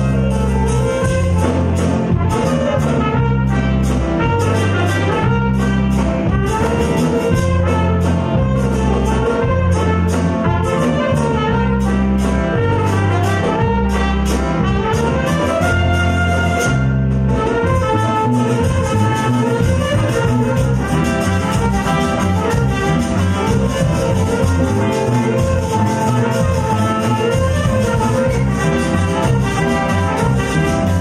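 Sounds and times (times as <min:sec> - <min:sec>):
live band playing: 0:00.0 - 0:31.0
saxophones: 0:00.0 - 0:31.0
trumpet: 0:00.0 - 0:31.0.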